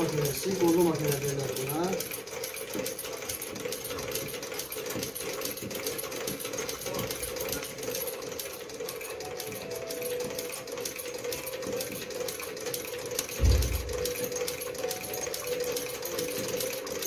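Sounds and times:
sewing machine stitching leather: 0.0 - 17.0
loud low thump: 13.4 - 14.0.

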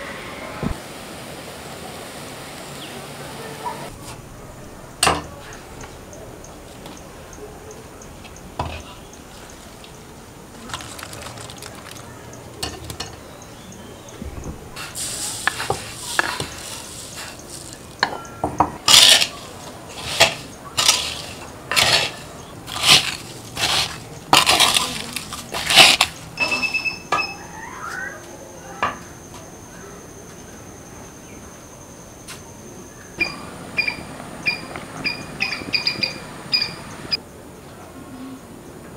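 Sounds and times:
scraping strokes against pot: 18.9 - 26.3.

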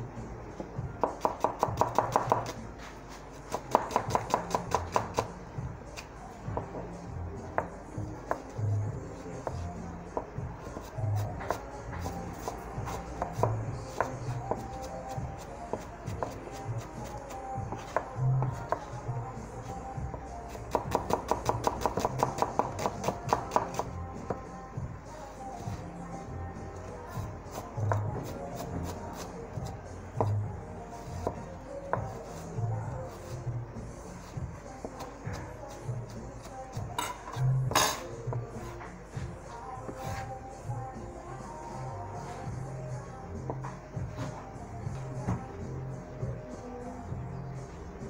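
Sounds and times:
background music: 0.0 - 48.0
cleaver chopping on cutting board: 1.0 - 2.6, 3.5 - 5.3
knife chopping on cutting board: 1.0 - 2.6, 3.5 - 5.3, 20.7 - 24.4.

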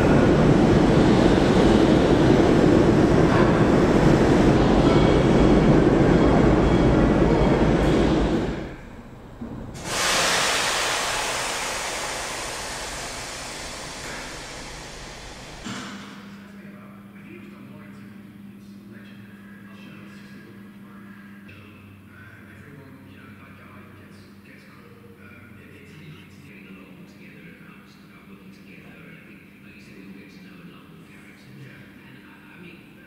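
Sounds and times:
locomotive engine rumbling: 0.0 - 16.2
loud hiss: 9.8 - 16.2.

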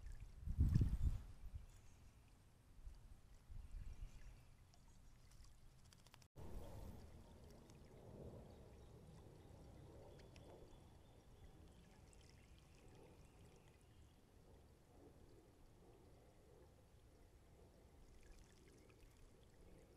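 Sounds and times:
fountain water trickling: 6.4 - 15.8, 17.0 - 19.9.

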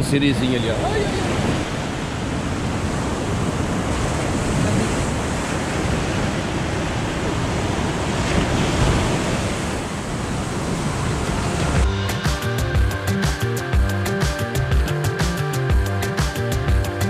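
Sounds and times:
ocean surf breaking on beach: 0.0 - 11.9
wind buffeting microphone: 0.0 - 11.9.

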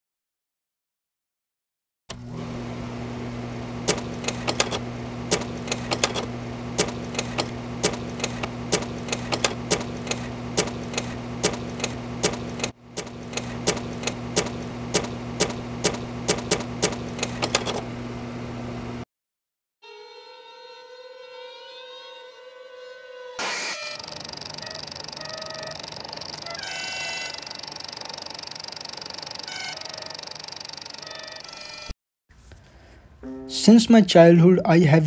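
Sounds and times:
low electrical hum: 2.2 - 19.0
sharp clicks: 3.9 - 17.8.

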